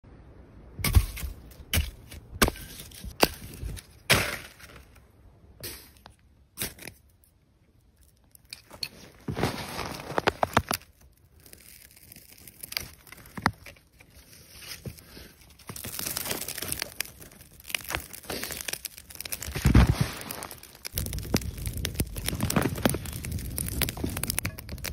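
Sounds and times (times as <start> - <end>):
kindling rustling and crackling: 8.4 - 11.0, 12.5 - 24.9
dry sticks snapping: 15.7 - 24.9.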